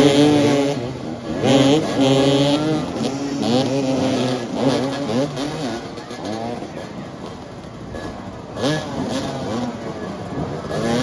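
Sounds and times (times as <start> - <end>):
motorcycle engines revving: 0.0 - 11.0.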